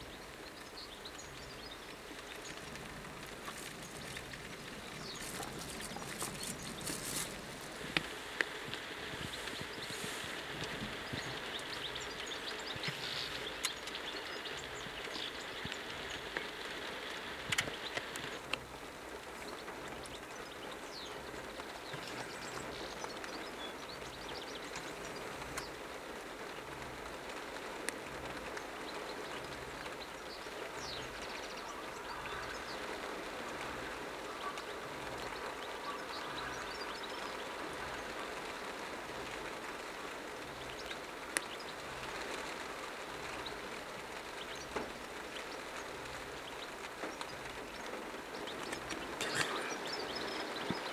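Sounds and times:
steady rushing noise: 0:00.0 - 0:50.9
finch twittering: 0:00.1 - 0:16.7, 0:44.2 - 0:50.9.

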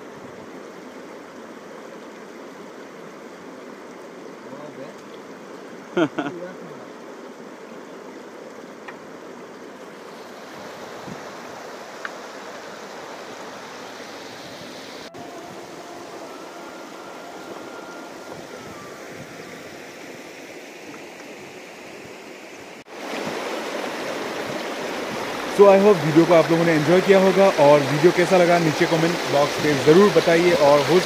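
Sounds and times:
river rushing over stones: 0:00.0 - 0:31.0.

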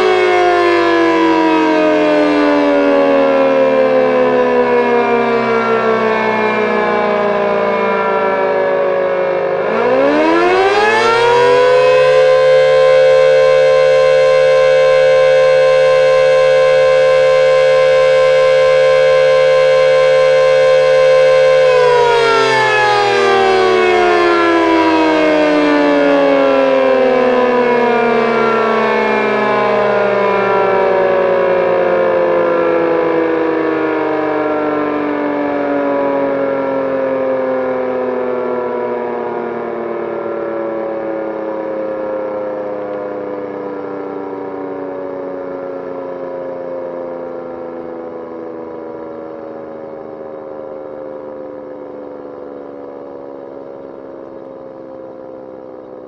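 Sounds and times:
motor siren wailing: 0:00.0 - 0:56.0.

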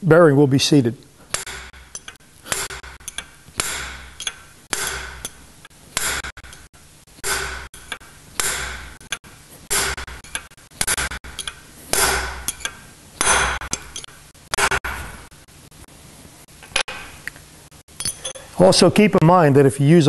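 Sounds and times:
hammer striking steel punch: 0:01.3 - 0:05.4, 0:06.0 - 0:15.3.

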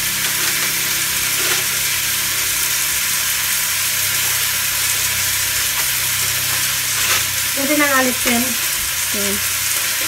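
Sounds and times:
fat sizzling in roasting pan: 0:00.0 - 0:10.0.

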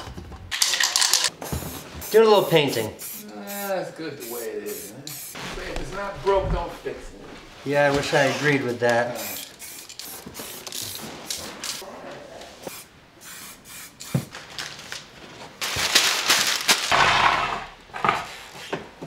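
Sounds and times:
spray can hissing: 0:01.4 - 0:05.4, 0:09.1 - 0:11.4, 0:12.7 - 0:14.2.

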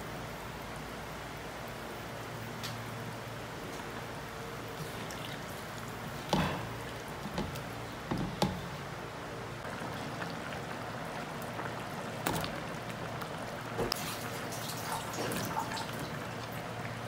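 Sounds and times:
curry bubbling and sloshing: 0:04.6 - 0:09.0, 0:09.6 - 0:17.0.

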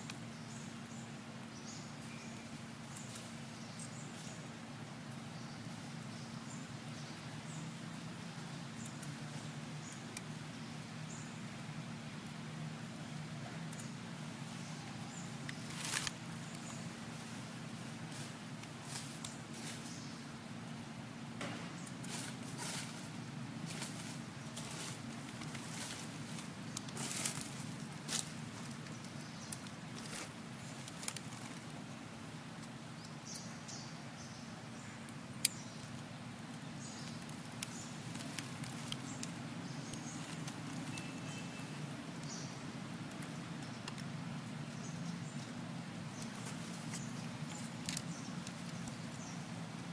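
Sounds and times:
steady low hum: 0:00.0 - 0:49.9
faint sharp clicks: 0:43.0 - 0:44.2.

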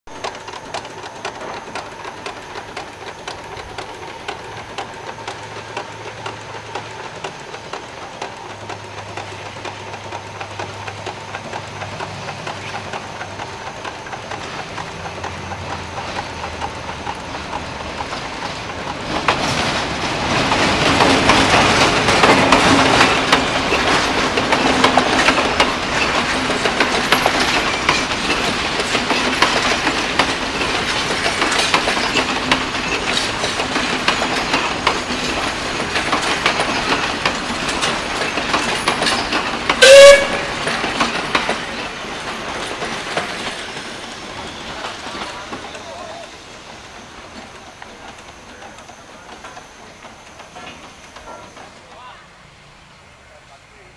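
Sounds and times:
clattering machinery with hum: 0:00.1 - 0:43.9
loud whistle toot: 0:39.8 - 0:40.5.

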